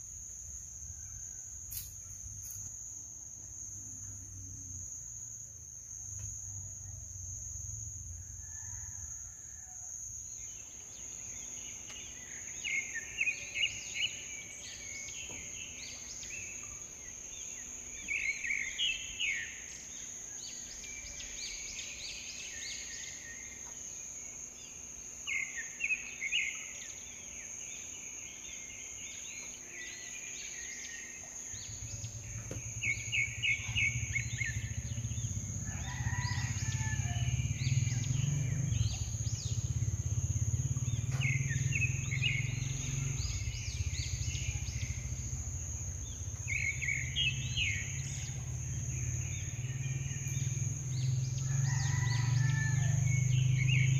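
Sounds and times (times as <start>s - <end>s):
high-pitched insect drone: 0.0s - 53.9s
birds chirping in trills: 24.7s - 53.9s.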